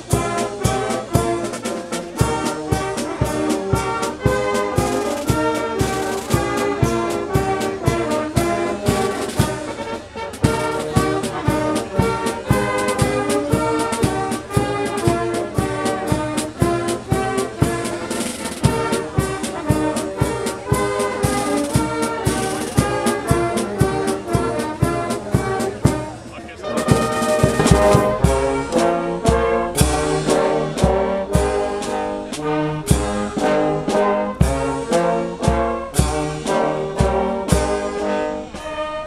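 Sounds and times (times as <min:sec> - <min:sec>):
brass band playing: 0:00.0 - 0:39.0
drum beat: 0:26.7 - 0:37.7.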